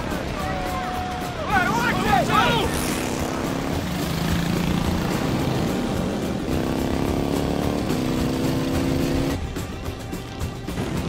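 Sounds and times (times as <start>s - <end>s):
motorcycle engine running hard: 1.7s - 11.0s.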